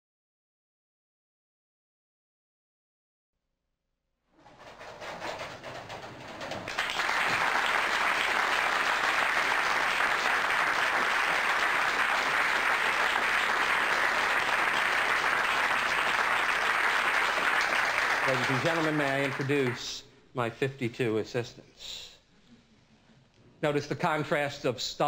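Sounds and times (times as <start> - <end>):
audience applauding: 5.0 - 20.0.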